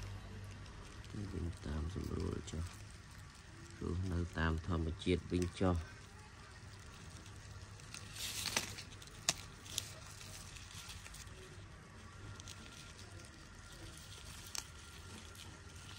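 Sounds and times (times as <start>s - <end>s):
low steady hum: 0.0s - 15.9s
short rustle: 6.8s - 15.9s.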